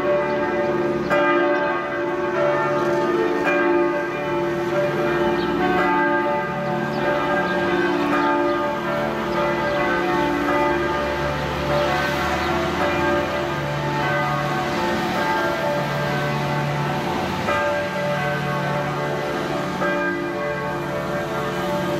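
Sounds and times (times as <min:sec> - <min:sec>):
church bells pealing: 0:00.0 - 0:21.9.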